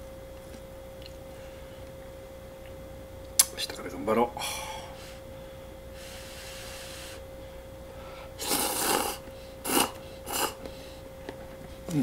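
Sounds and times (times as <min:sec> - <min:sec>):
faint steady hum: 0:00.0 - 0:12.0
person slurping noodles: 0:08.4 - 0:10.6.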